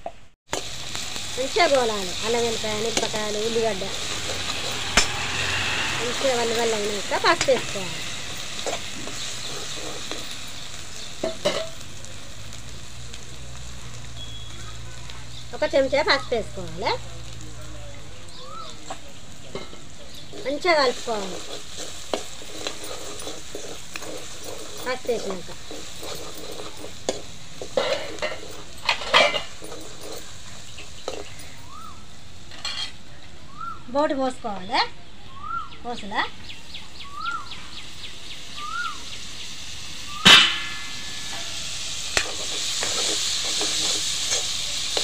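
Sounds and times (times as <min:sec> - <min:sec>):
onion frying: 0:00.0 - 0:45.0
food sizzling in oil: 0:00.5 - 0:45.0
steel ladle scraping a pan: 0:01.6 - 0:11.8, 0:18.8 - 0:31.6, 0:32.5 - 0:33.0, 0:40.2 - 0:45.0.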